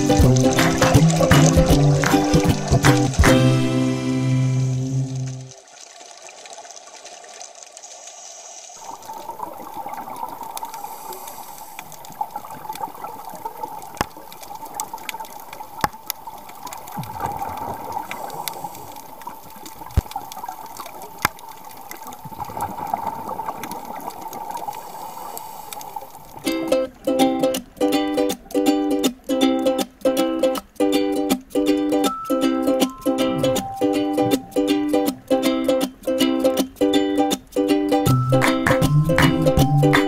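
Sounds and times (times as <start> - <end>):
muffled underwater hiss: 0.0 - 27.0.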